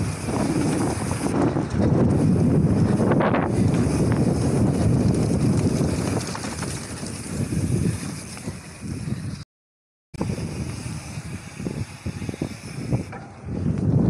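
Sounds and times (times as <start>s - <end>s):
bike tyres rumbling over dirt: 0.0s - 9.4s, 10.2s - 14.0s
wind buffeting microphone: 0.0s - 9.4s, 10.2s - 14.0s
small knocks from bike: 5.1s - 7.2s.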